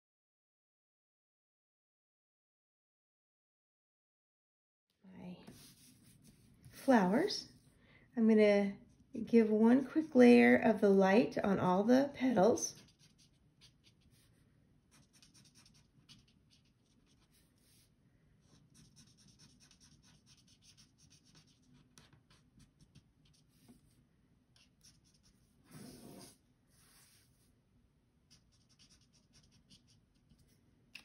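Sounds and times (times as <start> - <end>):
marker scratching on cardstock: 5.5 - 7.3, 12.7 - 14.3, 14.9 - 24.0, 24.6 - 27.4, 28.3 - 31.0.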